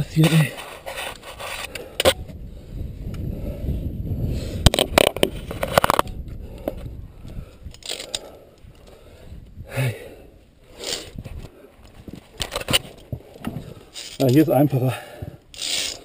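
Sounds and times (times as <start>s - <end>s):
scraping against rock: 0.0s - 2.2s, 10.8s - 16.0s.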